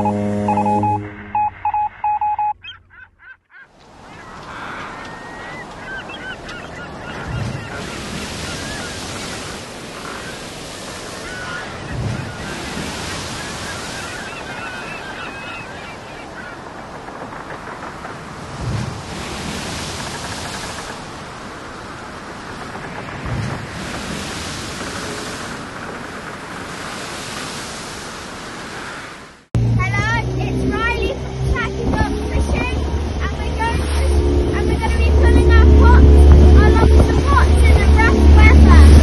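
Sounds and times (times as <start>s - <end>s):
waves washing: 0.0s - 2.4s, 3.7s - 39.0s
short electronic beeps: 0.0s - 2.8s
birds calling: 1.4s - 18.4s.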